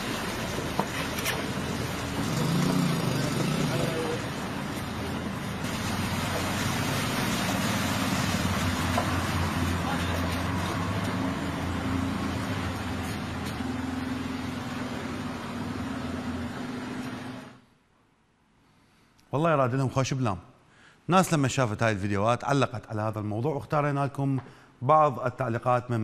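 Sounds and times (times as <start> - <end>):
vehicle engine hum: 0.0 - 17.7.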